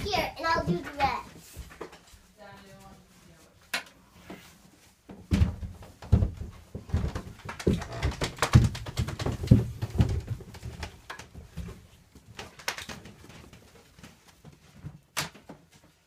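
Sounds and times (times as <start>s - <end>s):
footsteps thumping on floor: 5.1s - 7.8s.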